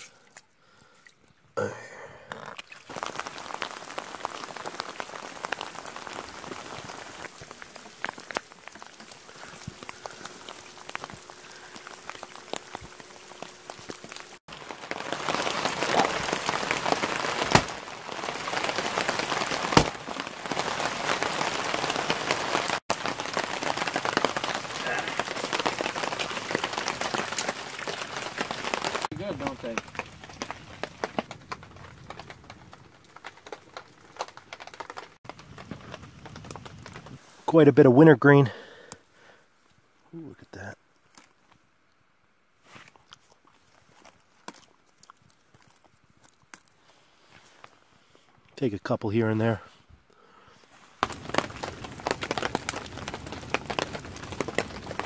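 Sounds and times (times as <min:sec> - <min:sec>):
rain pattering: 0:02.4 - 0:39.4, 0:43.7 - 0:55.0.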